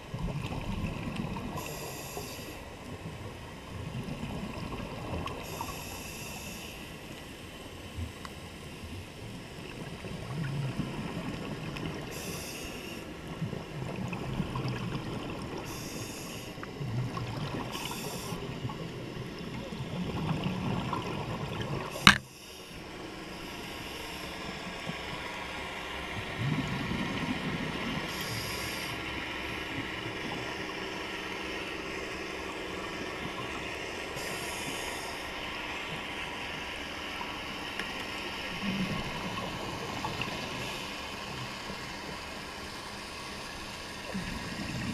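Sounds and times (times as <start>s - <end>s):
diver breathing underwater: 28.1s - 29.0s.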